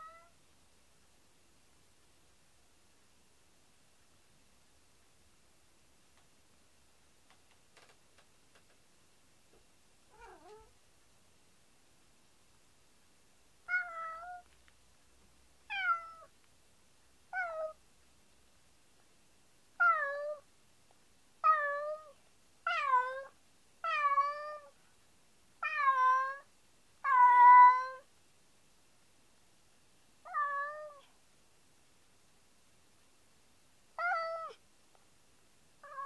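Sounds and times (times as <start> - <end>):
cat meowing: 0.0 - 0.3, 10.1 - 10.7, 13.7 - 14.4, 15.7 - 16.3, 17.4 - 17.8, 19.8 - 20.4, 21.4 - 24.7, 25.6 - 28.0, 30.3 - 31.1, 34.0 - 34.6.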